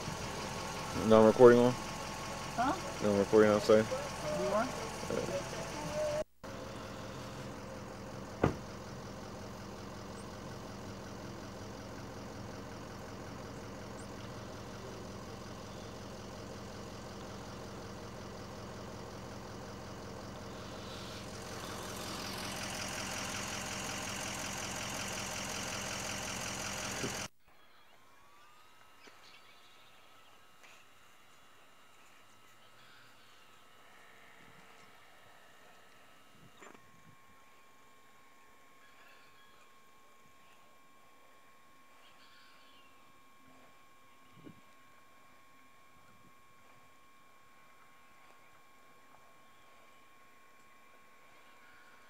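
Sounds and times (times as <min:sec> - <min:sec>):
vehicle engine idling: 0:00.0 - 0:27.4
faint outdoor background: 0:00.0 - 0:52.0.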